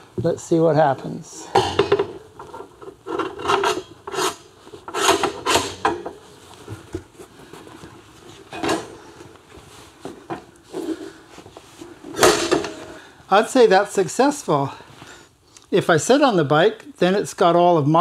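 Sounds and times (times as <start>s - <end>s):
metal stand scraping and clunking: 1.6s - 6.2s.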